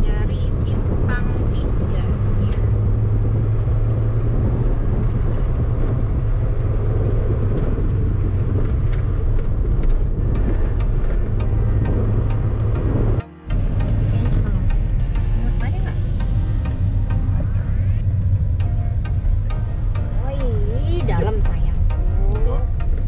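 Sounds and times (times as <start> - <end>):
car engine and road hum: 0.0 - 23.0
light ticks: 4.6 - 11.5.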